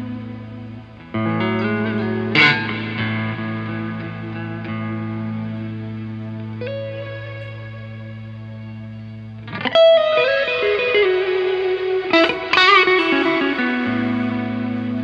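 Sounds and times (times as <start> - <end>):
electric guitar lead playing: 0.0 - 15.0.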